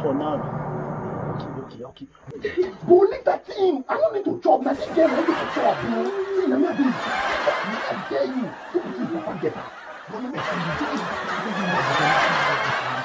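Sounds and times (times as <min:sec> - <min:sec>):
men talking excitedly: 0:01.5 - 0:13.0
laughter: 0:02.3 - 0:02.8, 0:04.7 - 0:13.0.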